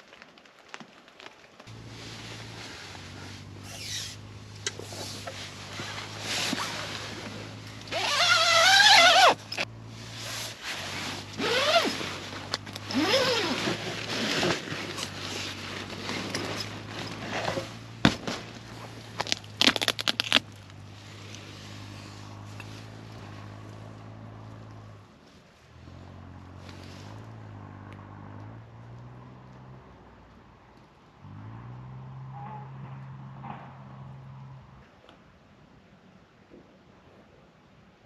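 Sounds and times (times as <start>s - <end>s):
rain falling on a tent: 0.0s - 25.7s
steady soft hiss: 1.7s - 19.2s
tent zipper being pulled: 1.7s - 23.4s.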